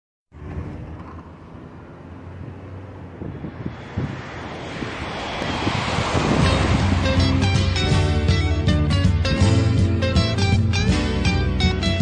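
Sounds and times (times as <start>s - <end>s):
car road and wind noise: 0.3s - 12.0s
wind buffeting microphone: 2.3s - 9.4s.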